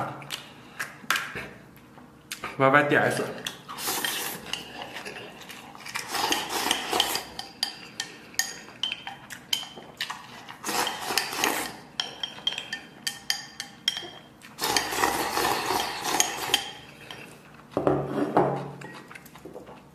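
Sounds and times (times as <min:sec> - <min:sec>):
noisy eating: 0:00.0 - 0:19.9
chopsticks clinking against ceramic bowl: 0:11.0 - 0:15.0.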